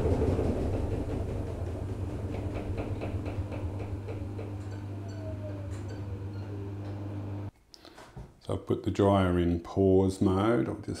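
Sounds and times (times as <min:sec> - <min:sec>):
falling motor whine: 0:00.0 - 0:07.5
washing machine low hum: 0:00.0 - 0:07.5.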